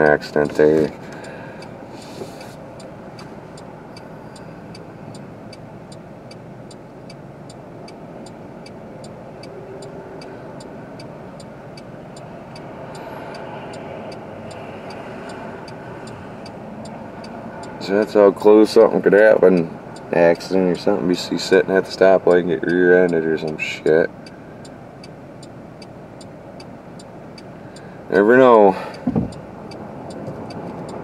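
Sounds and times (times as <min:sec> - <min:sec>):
passing traffic road noise: 0:00.0 - 0:31.0
light even ticking: 0:02.4 - 0:31.0.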